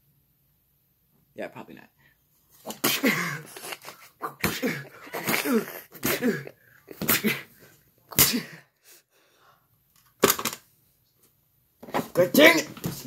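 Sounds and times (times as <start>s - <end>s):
person's wordless voice falling: 12.0s - 13.0s.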